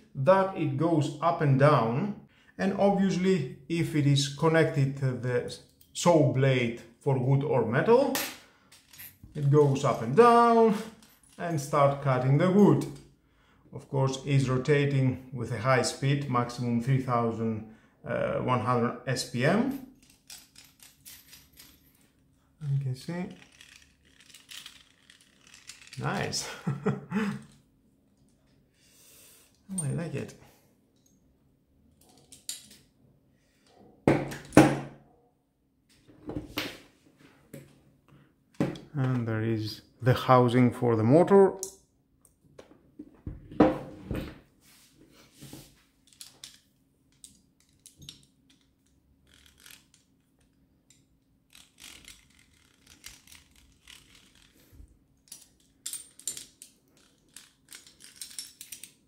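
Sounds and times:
small clicks scrapes and rattles: 23.3 - 26.0, 46.1 - 59.0.

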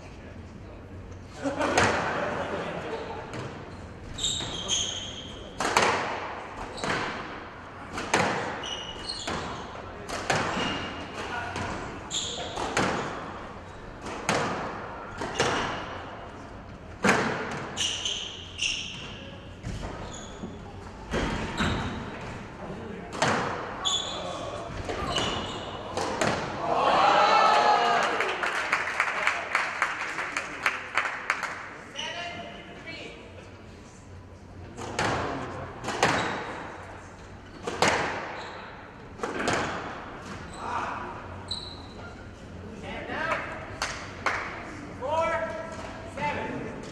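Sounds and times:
shoe squeaks: 3.7 - 5.6, 8.6 - 9.8, 10.5 - 11.2, 12.0 - 14.0, 17.7 - 20.8, 21.4 - 22.2, 23.8 - 25.9, 31.9 - 32.5, 38.3 - 38.8, 40.4 - 40.8, 41.4 - 42.4.

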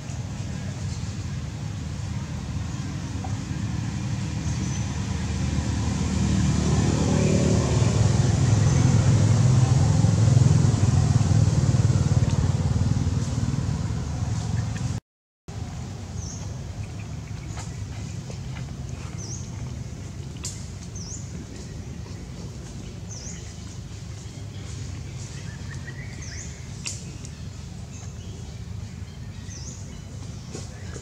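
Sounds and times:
quiet steady rumble: 0.0 - 31.0
vehicle engine passing by: 0.5 - 15.0.

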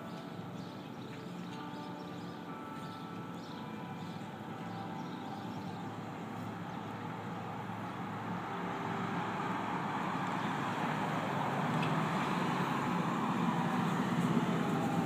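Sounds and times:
church bells ringing: 0.0 - 11.7
truck driving past: 5.8 - 15.0
car driving past: 7.7 - 15.0.

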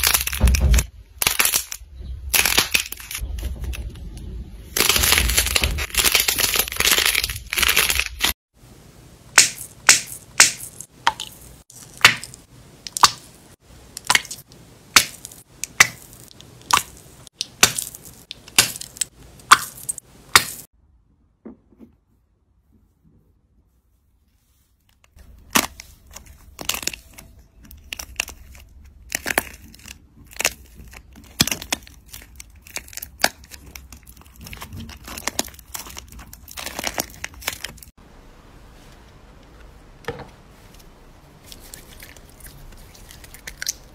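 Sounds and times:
crusted slime crunching: 0.0 - 3.9, 4.8 - 8.4, 14.0 - 20.7, 25.1 - 38.0, 41.4 - 43.9
slime crackling: 25.0 - 38.0.

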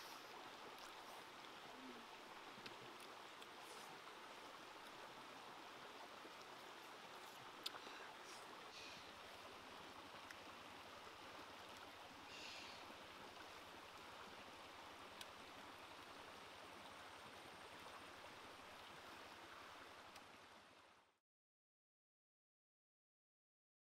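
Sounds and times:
stream flowing over rocks: 0.0 - 21.2
faint clicks: 7.6 - 8.0.

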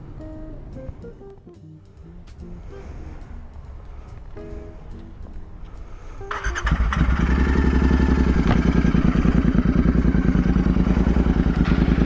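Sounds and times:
motorcycle engine starting and idling: 5.1 - 12.0.

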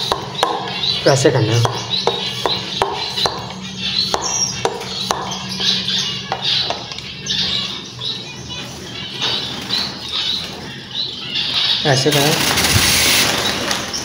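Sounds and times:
steady low hum: 0.0 - 9.2
finches chirping: 0.0 - 14.0.

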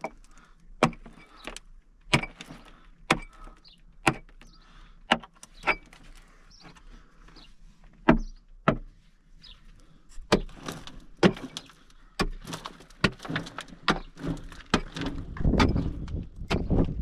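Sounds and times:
rough scraping: 9.4 - 17.0.

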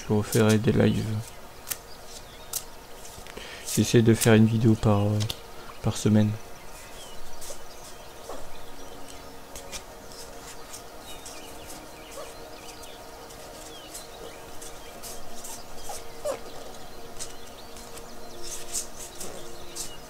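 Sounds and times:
calm background music: 0.0 - 20.0
bird chirps: 4.4 - 20.0
cards being shuffled: 13.3 - 20.0.

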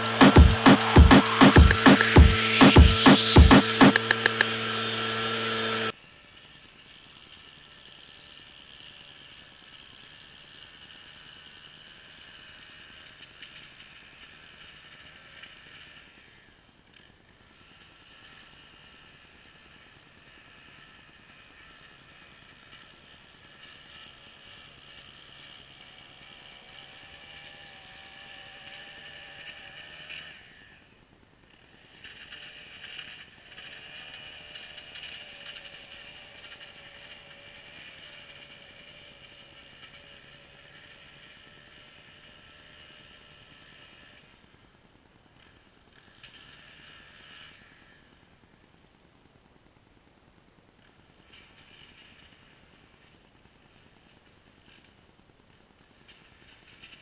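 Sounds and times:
music: 0.0 - 4.6
small petrol engine running: 0.0 - 57.0.

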